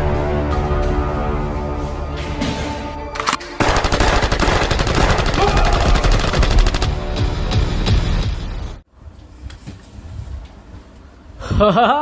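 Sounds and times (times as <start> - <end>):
rapid sharp cracks: 3.2 - 7.0.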